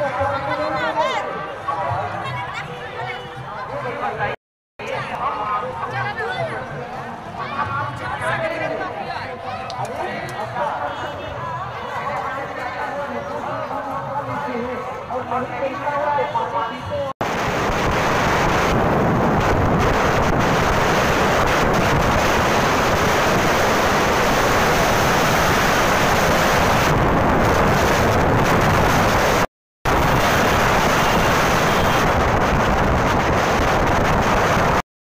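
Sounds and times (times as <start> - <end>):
wind buffeting microphone: 17.2 - 30.8.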